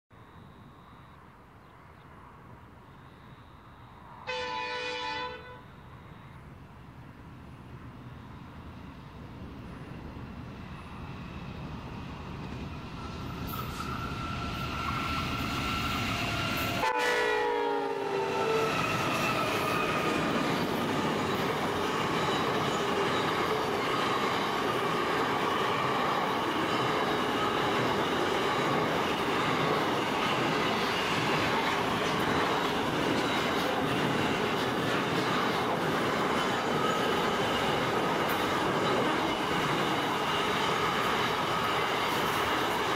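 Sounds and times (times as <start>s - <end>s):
diesel locomotives passing: 2.0s - 42.9s
locomotive horn: 4.3s - 5.8s, 16.6s - 18.8s
train wheels rumbling on rails: 7.0s - 42.9s.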